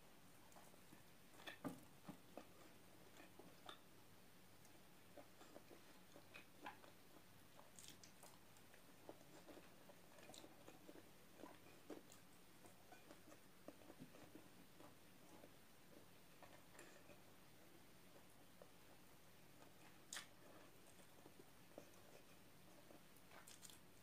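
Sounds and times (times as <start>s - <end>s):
faint chewing: 0.3s - 24.0s
small clicks and crackles: 19.6s - 23.9s.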